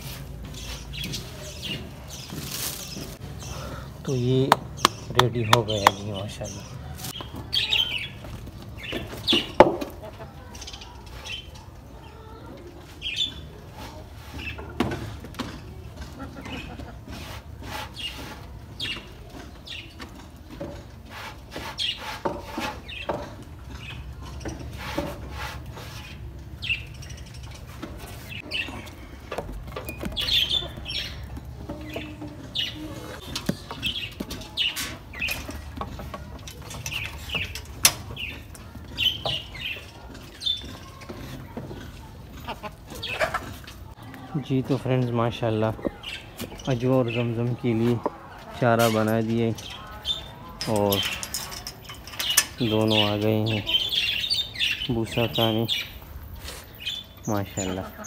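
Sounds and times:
small birds chirping: 0:00.0 - 0:58.0
sharp knocks and scuffs: 0:04.4 - 0:06.2.

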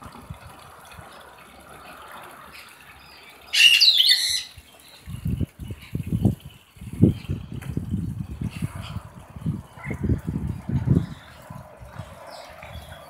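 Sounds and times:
wind buffeting microphone: 0:00.0 - 0:13.0
high bird call sweeping down: 0:03.6 - 0:04.5.

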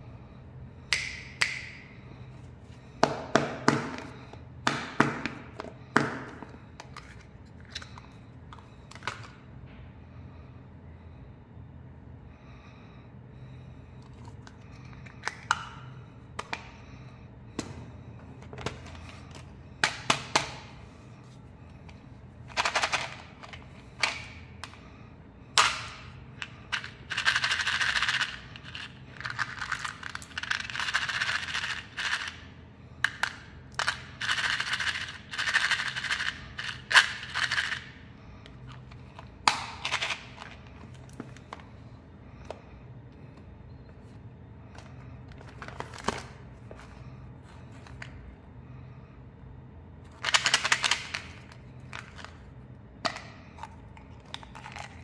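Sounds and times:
candies rattling in plastic tub: 0:26.8 - 0:32.4
candy packaging handled: 0:44.1 - 0:48.2.

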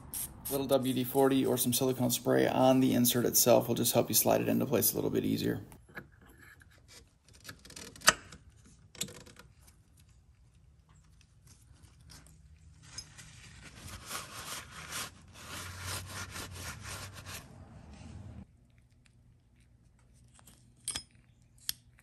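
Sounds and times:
rubbing and scraping: 0:11.2 - 0:18.4.

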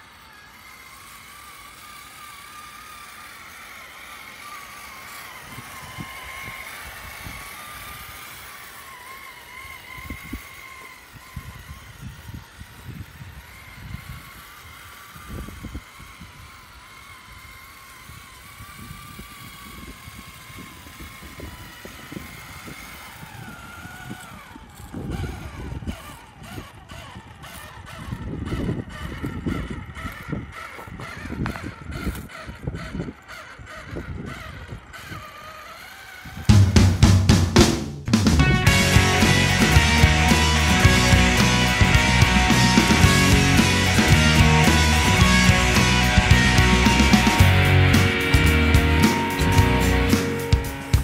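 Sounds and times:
electric motor whining: 0:00.0 - 0:37.3, 0:38.0 - 0:51.0
low thumps and rumbles: 0:36.5 - 0:51.0.

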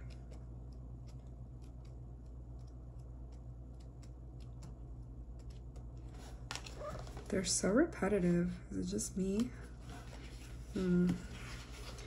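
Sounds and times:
steady low hum: 0:00.0 - 0:12.0
pages being flipped: 0:06.0 - 0:07.3, 0:09.8 - 0:12.0.

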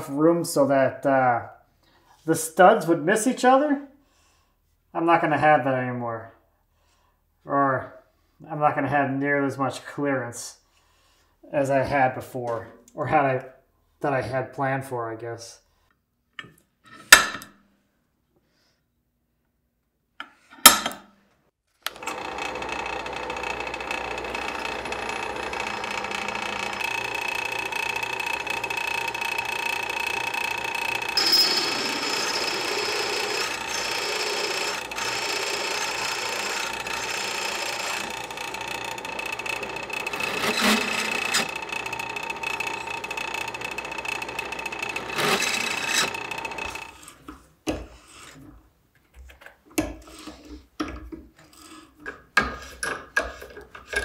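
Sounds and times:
drill press cutting steel: 0:21.9 - 0:47.2.

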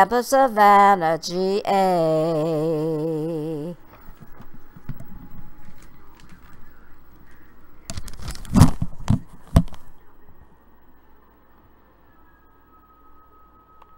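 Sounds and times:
handling clicks and rustles: 0:03.9 - 0:09.9.

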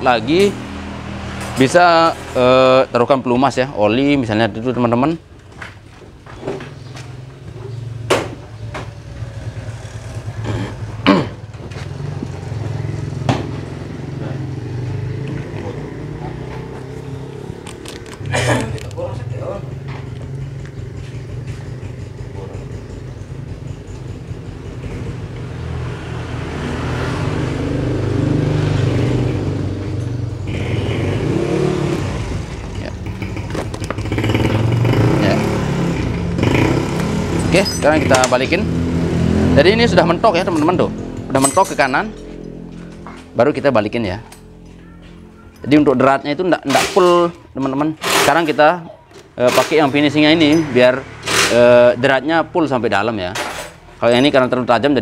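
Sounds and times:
motorcycle engine revving: 0:00.0 - 0:05.0, 0:06.2 - 0:44.8, 0:45.6 - 0:55.0
small engine running: 0:30.4 - 0:37.6.

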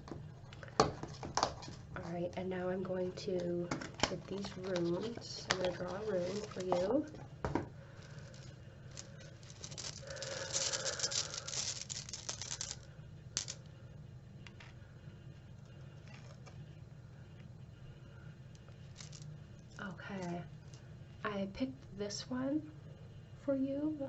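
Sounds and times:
stones rattling in cloth pouch: 0:04.7 - 0:06.9, 0:08.0 - 0:12.8, 0:13.4 - 0:13.6, 0:18.8 - 0:19.2.

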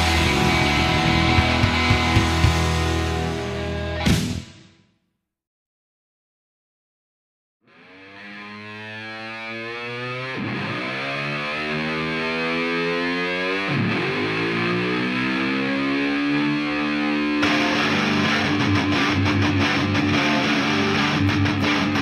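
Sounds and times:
distorted electric guitar notes: 0:00.0 - 0:04.6, 0:07.7 - 0:22.0
rock band with drums: 0:00.0 - 0:04.8, 0:16.1 - 0:22.0.

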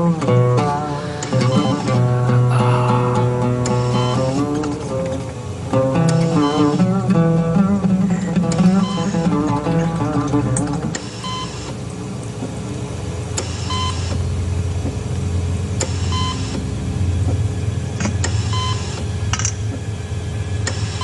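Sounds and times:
low steady hum: 0:00.0 - 0:21.0
patient monitor beeping: 0:01.2 - 0:04.8, 0:06.0 - 0:06.9, 0:08.5 - 0:09.3, 0:11.0 - 0:11.7, 0:13.5 - 0:14.2, 0:15.8 - 0:16.6, 0:18.3 - 0:19.0.

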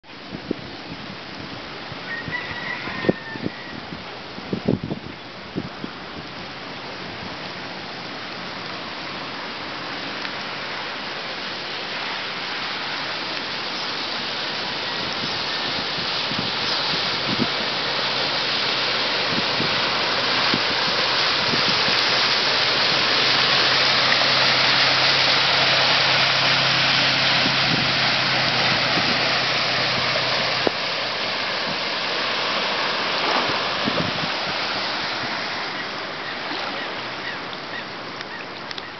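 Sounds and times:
tyres rushing through water: 0:00.0 - 0:38.9
truck engine hum: 0:12.0 - 0:37.2.

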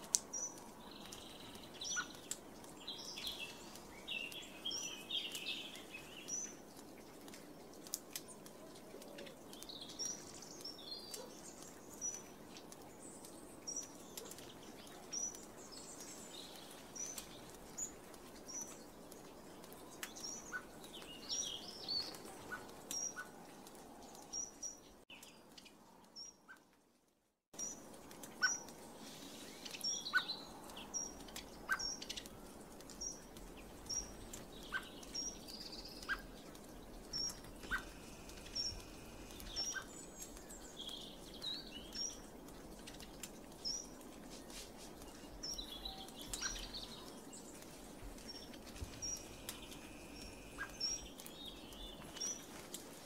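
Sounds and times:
small birds chirping: 0:00.1 - 0:26.7, 0:27.6 - 0:53.0
birds twittering: 0:28.4 - 0:43.9, 0:48.2 - 0:52.6.

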